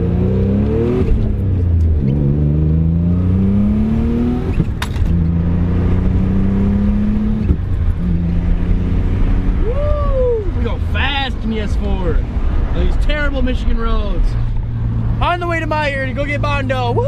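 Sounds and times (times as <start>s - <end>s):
car engine accelerating hard: 0.0s - 10.4s.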